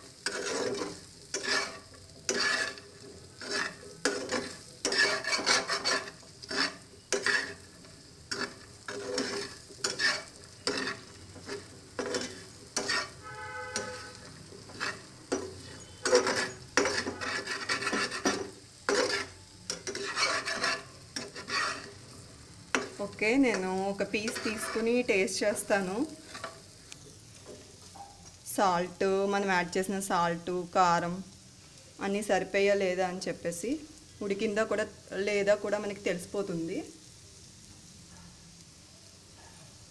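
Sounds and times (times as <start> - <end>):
spatula scraping a pan: 0.0 - 27.9
light sizzle of frying: 0.0 - 39.9.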